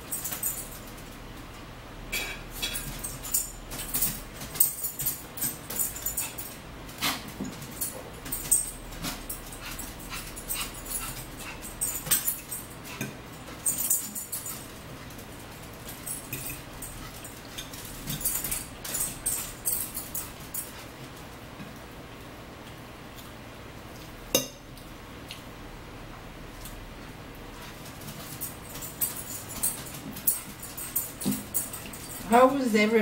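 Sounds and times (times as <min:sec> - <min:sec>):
forks clicking on plates: 0:02.1 - 0:15.2, 0:15.8 - 0:20.9.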